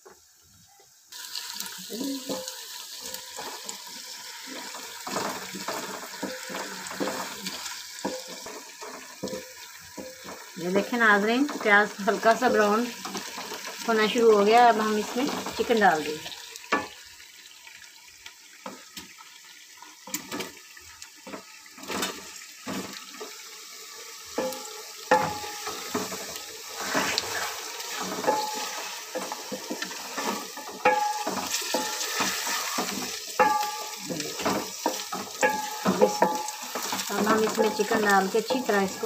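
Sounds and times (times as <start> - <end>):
chicken sizzling in hot oil: 0.0 - 39.0
wooden spatula knocking metal pot: 4.6 - 10.6, 24.3 - 26.2, 28.1 - 39.0.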